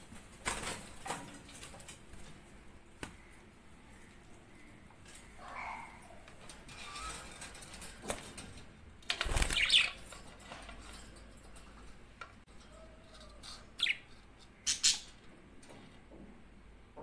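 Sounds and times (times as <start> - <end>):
bird wings flapping: 9.1 - 9.9
bird chirp: 13.5 - 15.2.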